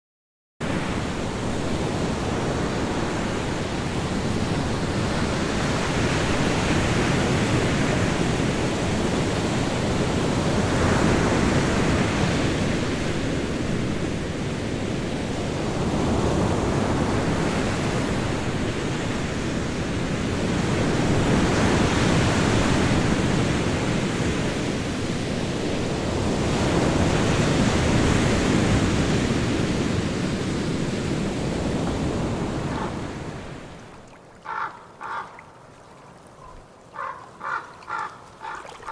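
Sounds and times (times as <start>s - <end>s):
sea waves washing: 14.7s - 38.9s.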